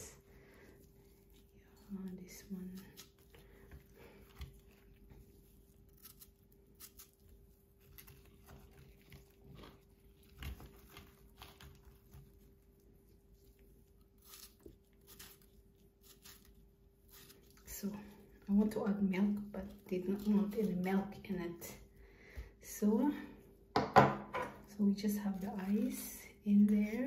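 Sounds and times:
knife cutting watermelon: 2.0s - 12.5s, 13.5s - 17.7s.

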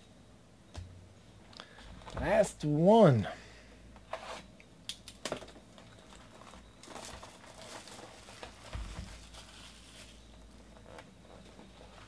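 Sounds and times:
plastic wrapper crinkling: 6.0s - 10.2s.

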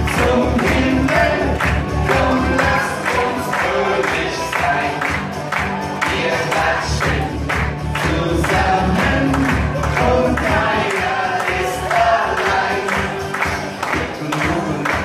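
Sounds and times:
group singing: 0.0s - 15.0s
music with steady beat: 0.0s - 15.0s.

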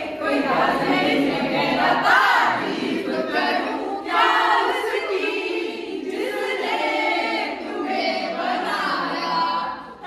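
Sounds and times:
group of people singing: 0.0s - 10.0s.

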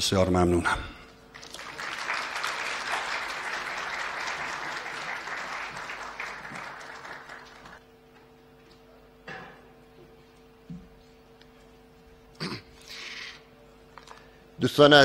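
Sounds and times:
audience applauding: 1.3s - 7.8s.

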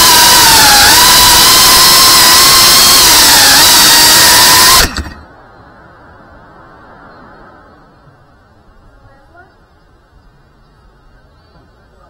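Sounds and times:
drone motors whining: 0.0s - 5.3s.

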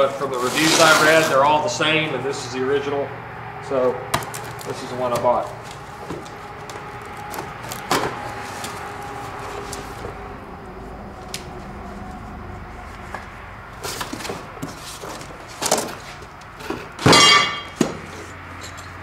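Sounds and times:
carton scraping on concrete floor: 0.0s - 2.1s, 4.2s - 10.3s, 12.7s - 18.8s.

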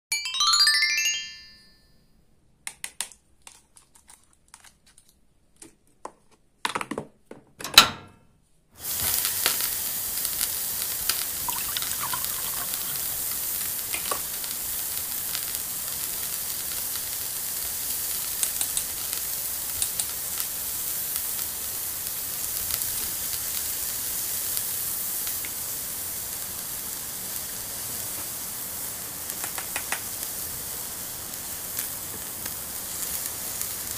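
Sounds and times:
short rising chime: 0.1s - 1.9s
frying sizzle with crackles: 8.8s - 33.9s.

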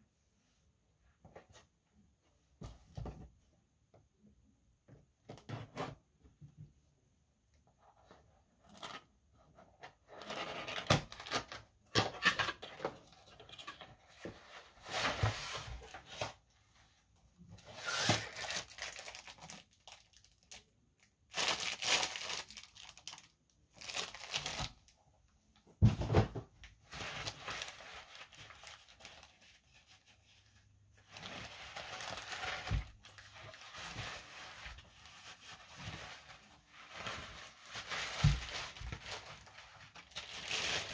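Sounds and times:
plastic packaging crinkling and tearing: 17.7s - 24.9s, 26.9s - 29.8s, 31.0s - 40.9s.

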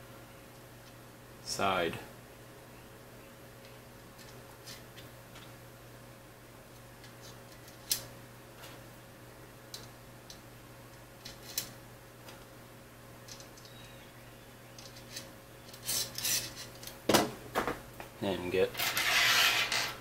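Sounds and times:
metal nuts clicking and scraping: 14.8s - 17.0s, 18.7s - 20.0s.

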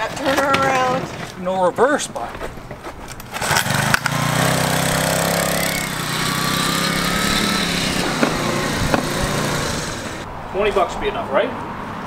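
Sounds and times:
small gas engine running: 3.3s - 10.2s.

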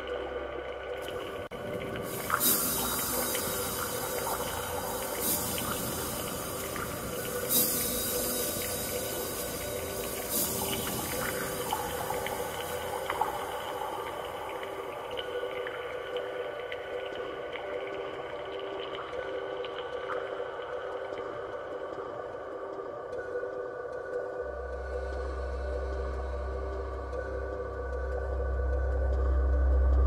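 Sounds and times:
ambient electronic music: 0.0s - 30.0s
noisy swells: 1.6s - 15.9s.

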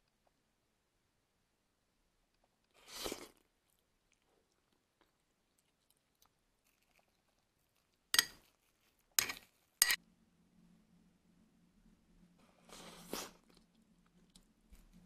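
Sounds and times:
faint low hum: 0.0s - 15.0s
metal spoon scraping a pot: 8.2s - 8.4s, 9.2s - 10.0s.

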